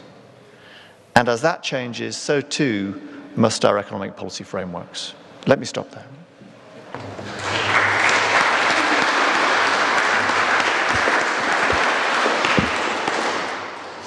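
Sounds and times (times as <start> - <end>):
audience applauding: 7.0 - 14.0.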